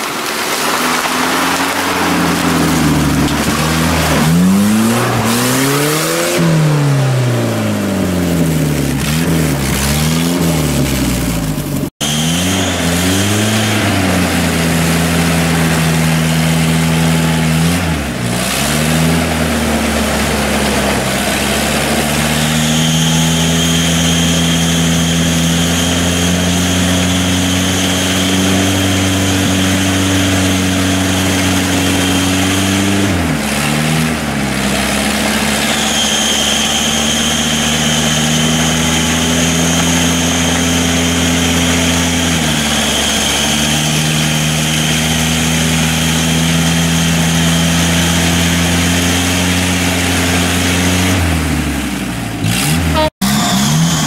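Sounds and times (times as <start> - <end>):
engine revving under heavy load: 0.0 - 54.0
thin high whine: 35.2 - 48.4.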